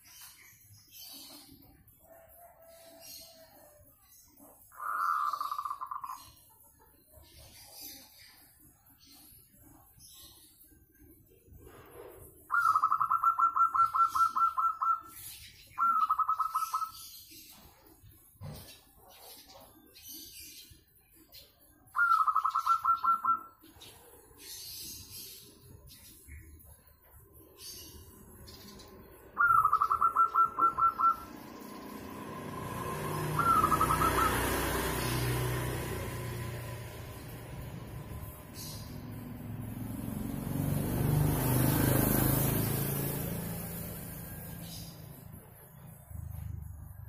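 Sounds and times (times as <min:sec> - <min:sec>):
dove cooing: 0:04.7 - 0:06.6, 0:11.7 - 0:15.1, 0:15.8 - 0:17.1, 0:22.0 - 0:24.8, 0:29.4 - 0:35.3.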